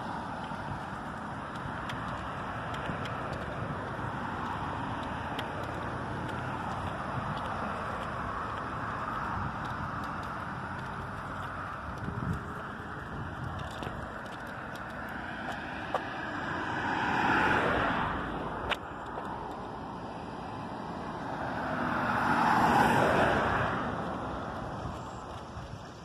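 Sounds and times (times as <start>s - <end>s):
road vehicles passing by: 0.0s - 26.0s.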